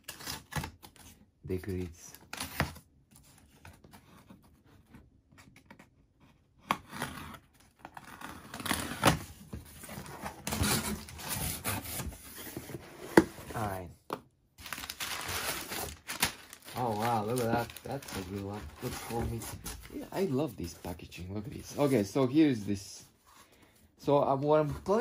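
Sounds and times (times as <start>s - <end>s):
packing paper rustling: 14.6s - 22.8s.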